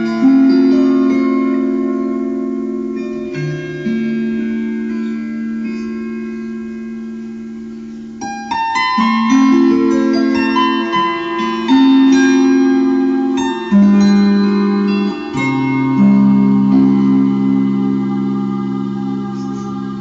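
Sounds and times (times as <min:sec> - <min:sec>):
slow keyboard music: 0:00.0 - 0:20.0.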